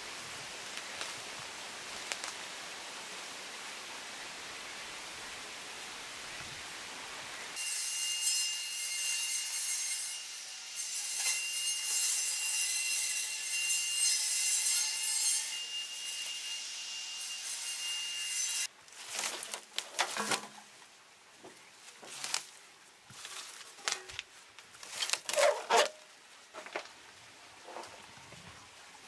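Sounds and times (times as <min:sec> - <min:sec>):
leaves and vines rustling: 0:00.0 - 0:07.6, 0:18.6 - 0:29.0.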